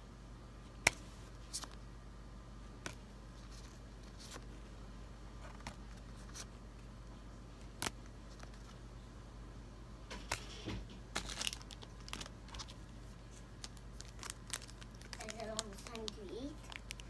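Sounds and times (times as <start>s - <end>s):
low steady hum: 0.0s - 17.0s
cards clicking and rustling: 5.4s - 6.5s, 7.6s - 8.8s, 10.1s - 12.8s, 13.6s - 17.0s.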